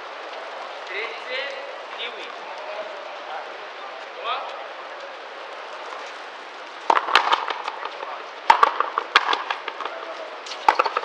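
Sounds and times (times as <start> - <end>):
ball cracking off rackets: 5.9 - 11.0
ball hitting wall: 6.9 - 7.9, 8.5 - 10.0.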